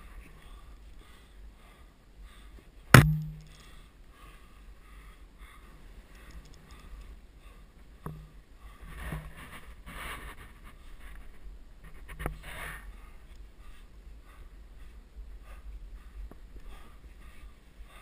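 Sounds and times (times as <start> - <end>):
helmet knocking against rock: 3.0 - 3.6.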